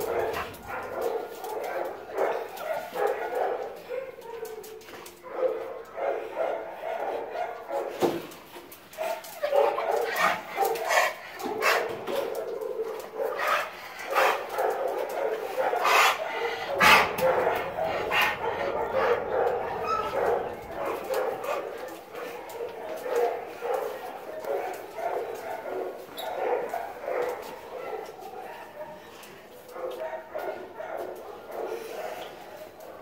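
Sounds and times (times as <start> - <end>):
dogs barking: 0.0 - 33.0
dogs whining: 15.8 - 21.4.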